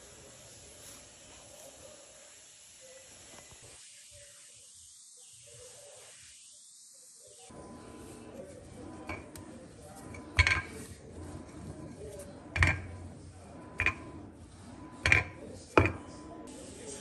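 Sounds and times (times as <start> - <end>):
rolling pin rubbing dough: 7.5 - 17.0
rolling pin knocking on stone: 12.5 - 13.0, 13.8 - 14.2, 15.0 - 16.0.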